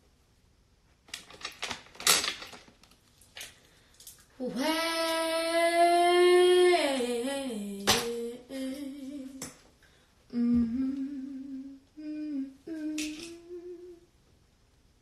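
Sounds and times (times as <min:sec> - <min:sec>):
woman humming: 0:10.3 - 0:14.1.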